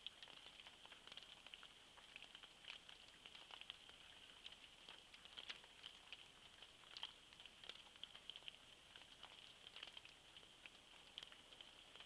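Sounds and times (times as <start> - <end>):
faint high-pitched whine: 0.0 - 12.0
raindrops pattering: 0.0 - 12.0.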